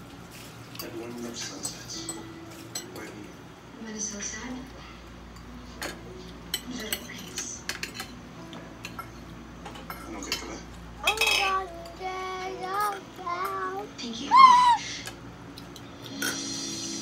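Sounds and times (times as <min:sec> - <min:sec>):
cutlery clinking on ceramic plates: 0:05.4 - 0:08.2, 0:08.8 - 0:12.0, 0:15.7 - 0:16.5.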